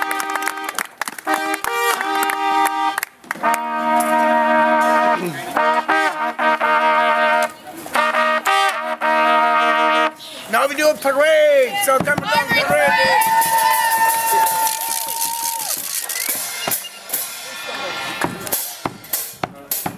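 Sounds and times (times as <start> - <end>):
trombones playing held notes: 0.0 - 10.2.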